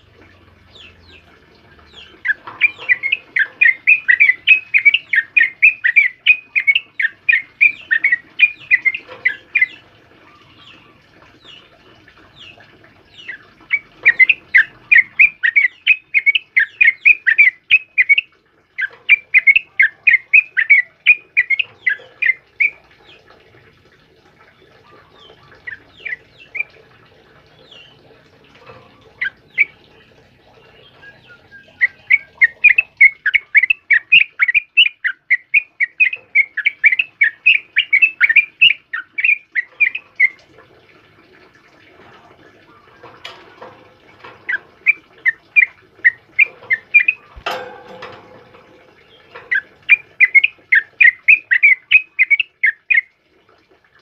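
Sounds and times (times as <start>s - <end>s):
bird singing sharp notes: 1.9s - 9.8s, 44.4s - 53.1s.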